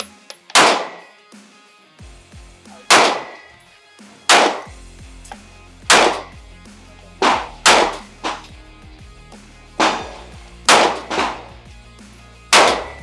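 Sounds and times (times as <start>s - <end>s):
pistol shots: 0.5s - 1.1s, 2.7s - 3.5s, 4.3s - 4.7s, 5.8s - 6.4s, 7.2s - 8.5s, 9.8s - 11.6s, 12.5s - 13.0s.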